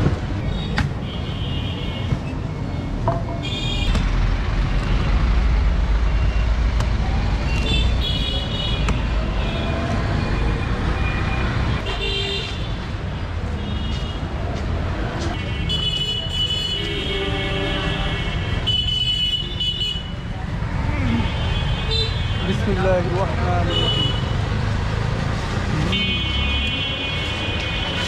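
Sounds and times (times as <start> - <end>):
engine rumble of passing vehicles: 1.9 - 12.0, 20.2 - 28.0.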